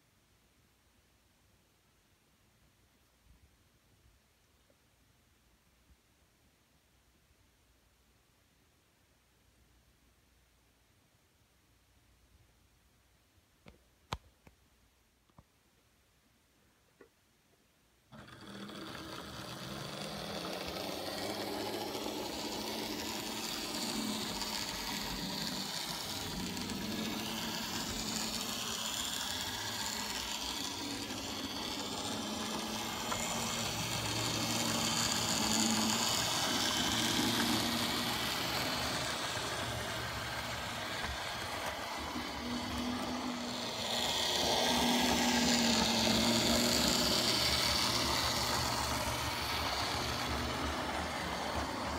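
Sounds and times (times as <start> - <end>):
model train running on track: 18.1 - 51.9.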